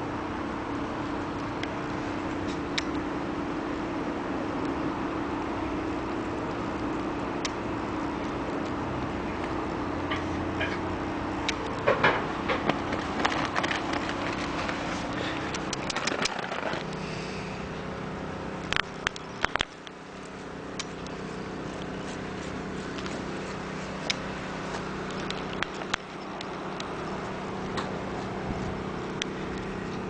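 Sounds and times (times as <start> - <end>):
low machine hum: 0.0 - 30.0
sharp clicks: 18.6 - 21.2
cat rubbing against camera: 21.2 - 24.7.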